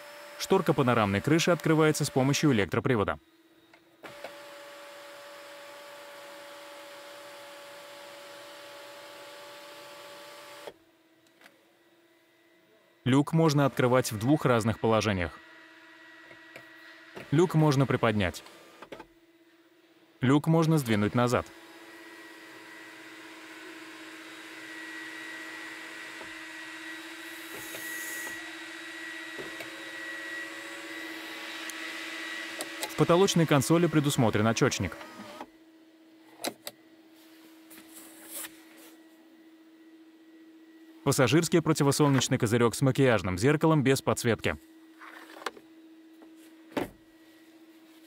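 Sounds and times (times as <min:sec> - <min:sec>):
electric motor whine: 0:00.0 - 0:02.5, 0:03.2 - 0:11.2, 0:13.3 - 0:19.2, 0:20.6 - 0:35.6
sunroof motor humming: 0:20.8 - 0:34.1.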